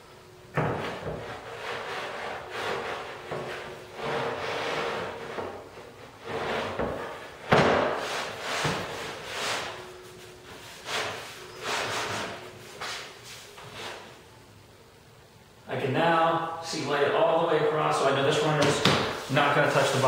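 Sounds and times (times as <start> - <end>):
board scraping on metal: 0.6 - 9.8.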